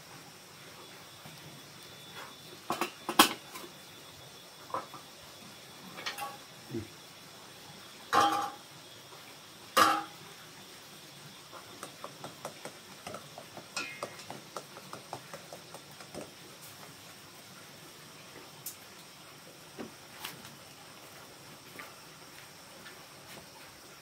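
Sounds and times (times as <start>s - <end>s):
metal pot lid clanking: 6.0s - 6.4s, 8.1s - 8.6s, 9.8s - 10.2s, 13.8s - 14.3s.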